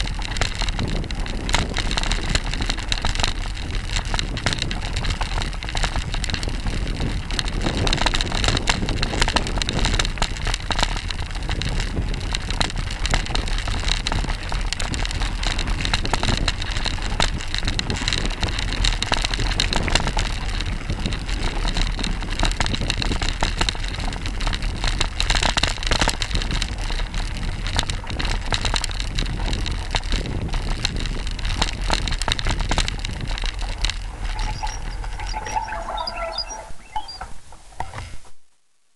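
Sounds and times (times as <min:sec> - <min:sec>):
bike clicks and rattles: 0:00.0 - 0:38.2
bike tyre noise on dirt: 0:00.0 - 0:38.4
wind rushing: 0:33.7 - 0:37.5.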